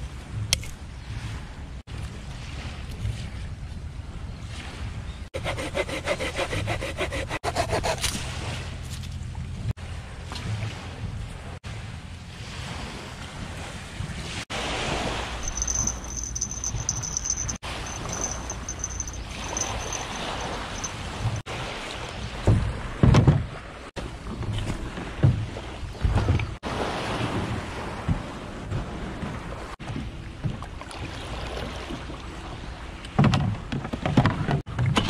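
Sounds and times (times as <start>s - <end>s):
small waves lapping beach: 1.0s - 5.1s, 9.8s - 33.1s.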